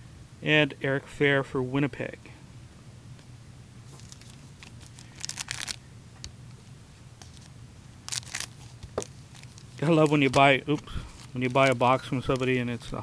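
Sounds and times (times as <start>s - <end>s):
wrapper tearing and crinkling: 4.0s - 5.8s, 7.2s - 12.5s
light handling ticks: 8.5s - 12.6s.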